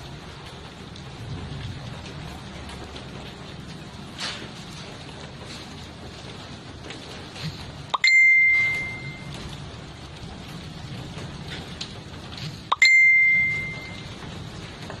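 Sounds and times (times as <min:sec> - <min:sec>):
bright bell dings: 0:08.0 - 0:09.3, 0:12.7 - 0:14.1.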